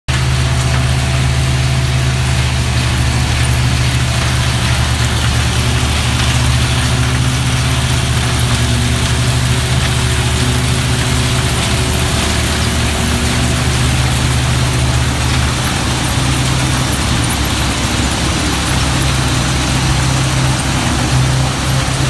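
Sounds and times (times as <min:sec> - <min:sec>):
conveyor carrying walnuts: 0:00.1 - 0:22.0
harvester engine hum: 0:00.1 - 0:22.0.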